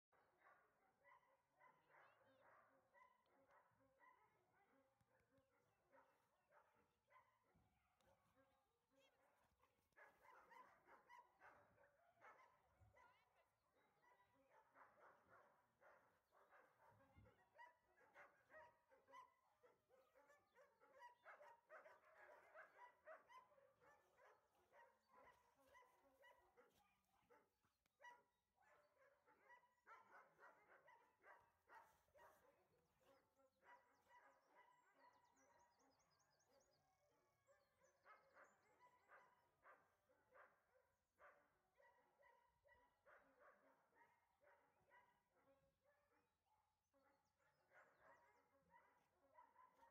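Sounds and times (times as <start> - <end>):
dogs barking and whining: 14.0 - 27.4.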